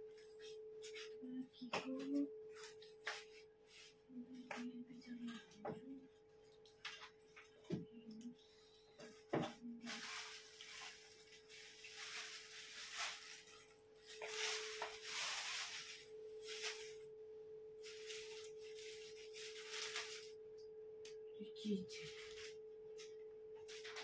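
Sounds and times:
faint humming tone: 0.0 - 24.0
plastic packaging rustling: 9.1 - 17.1, 17.8 - 20.4, 22.0 - 24.0.

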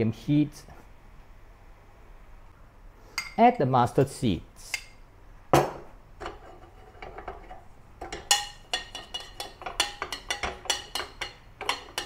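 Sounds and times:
metal spoon clinking in steel pan: 6.2 - 12.0.

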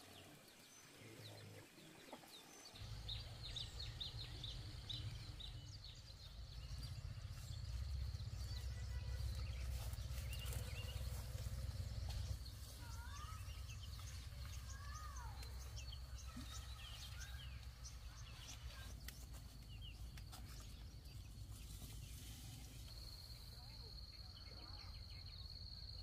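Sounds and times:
birds chirping: 0.0 - 26.0
low steady rumble: 2.8 - 16.3.

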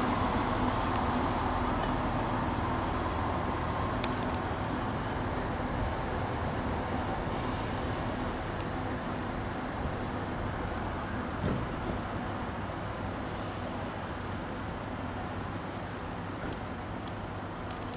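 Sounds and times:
diesel train humming: 0.0 - 17.7.

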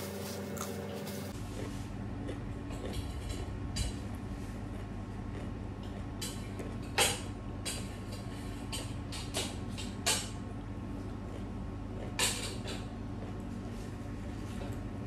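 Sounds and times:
steady low hum: 0.0 - 15.0
crunchy cucumber chewing: 1.4 - 8.1, 10.9 - 14.9.

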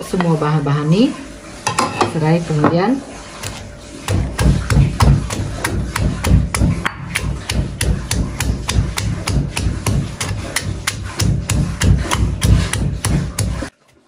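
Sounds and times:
stone pestle pounding in mortar: 3.4 - 13.7.

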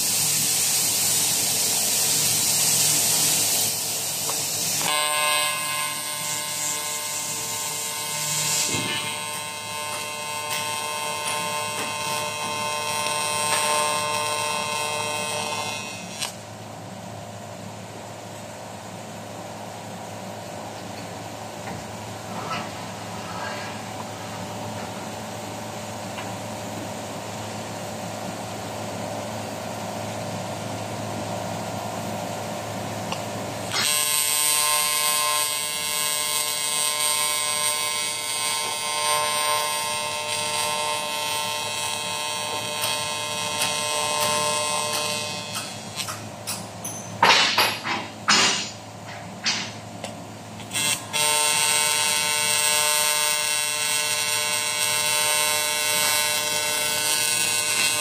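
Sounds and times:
welding arc buzzing: 0.0 - 58.0.

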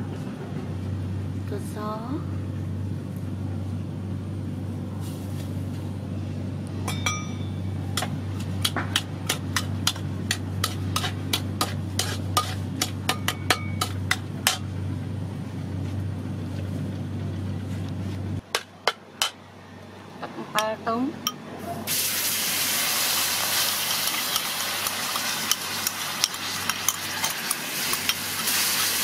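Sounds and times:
steady low hum: 0.0 - 21.9
metal spatula clinking on wok: 6.9 - 14.7.

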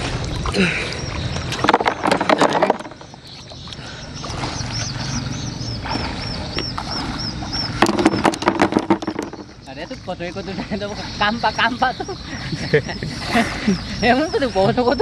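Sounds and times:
high chirping call: 0.8 - 15.0
clams clattering into plastic basin: 1.6 - 3.0, 7.8 - 9.5.

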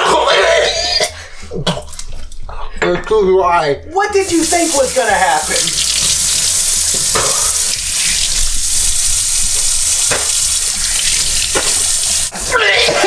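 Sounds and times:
faucet water pouring into sink: 4.2 - 12.4.

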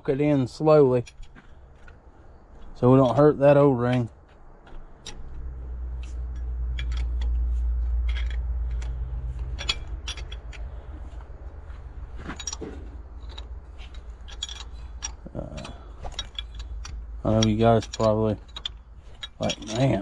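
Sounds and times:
low rumble: 4.1 - 19.8
metal wrench clinking on bolts: 5.9 - 20.0.

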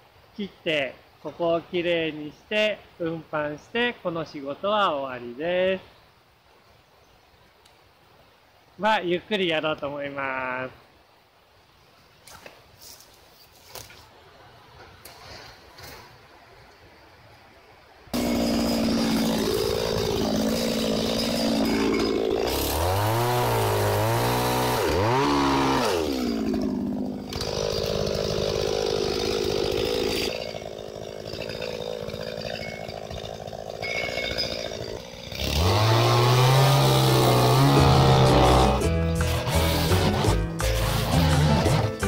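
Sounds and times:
chainsaw revving: 18.2 - 42.0.

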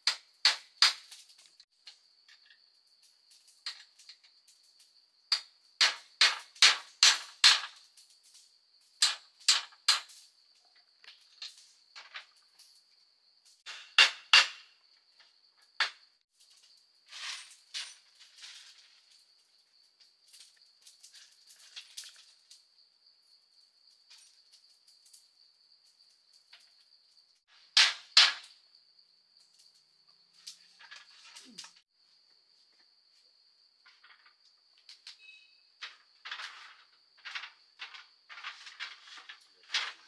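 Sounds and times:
hand tool striking wood: 5.3 - 7.7, 13.7 - 14.7.

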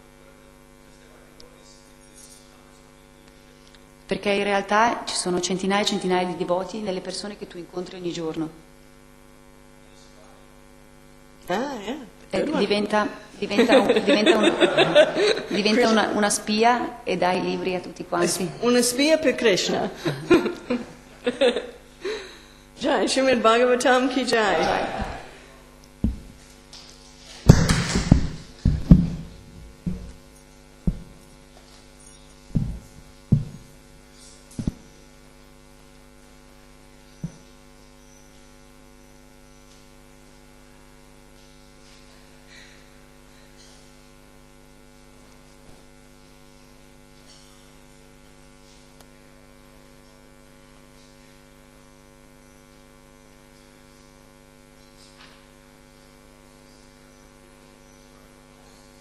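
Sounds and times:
electrical mains hum: 0.0 - 59.0
sharp knocks and thumps: 26.0 - 26.4, 27.4 - 31.3, 32.5 - 33.8, 34.5 - 34.9.

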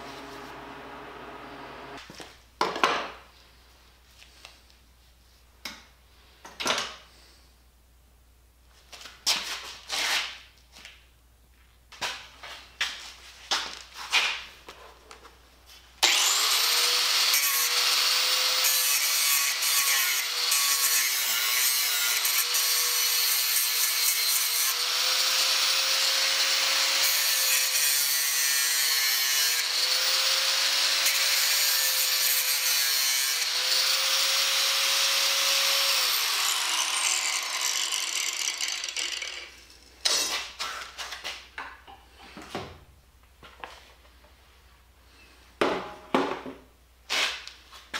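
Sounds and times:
angle grinder grinding metal: 16.0 - 40.2.

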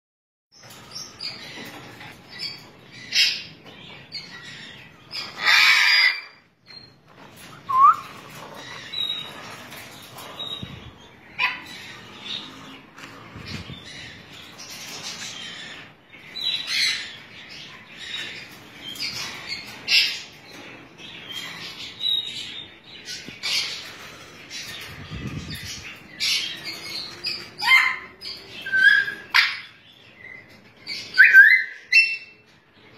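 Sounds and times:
parrots squawking: 4.2 - 20.3, 26.2 - 30.4, 31.1 - 32.4
parrot whistles: 7.7 - 8.1.

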